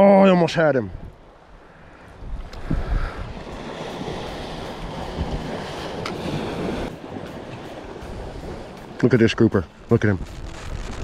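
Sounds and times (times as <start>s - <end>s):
wind buffeting microphone: 0.9s - 9.0s, 9.7s - 11.0s
waves splashing against rocks: 2.5s - 11.0s.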